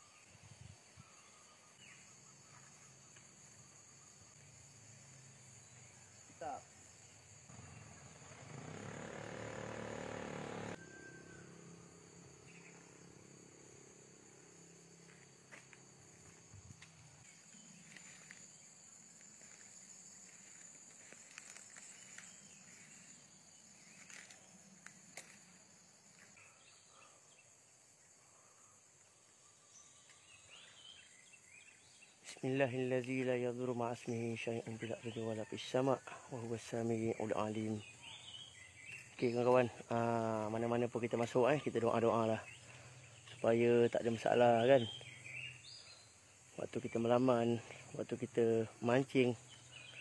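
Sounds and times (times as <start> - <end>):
high-pitched insect drone: 2.1 - 28.9.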